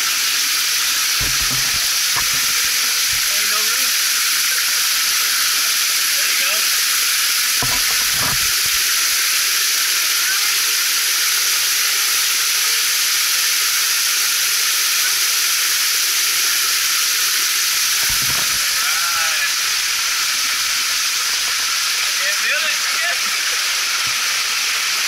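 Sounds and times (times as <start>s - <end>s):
waterfall splashing: 0.7s - 11.1s.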